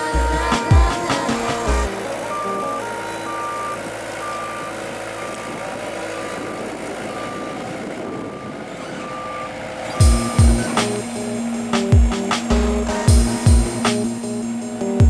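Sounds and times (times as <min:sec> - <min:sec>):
music: 0:00.0 - 0:04.5, 0:10.0 - 0:15.0
reversing alarm beeping: 0:00.0 - 0:15.0
roller engine running: 0:00.0 - 0:15.0.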